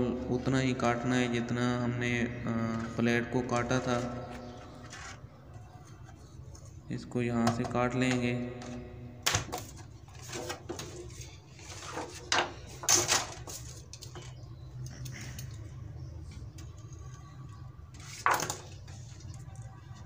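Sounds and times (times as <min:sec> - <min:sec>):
steady low hum: 0:00.0 - 0:10.1
paper rustling: 0:09.7 - 0:14.3.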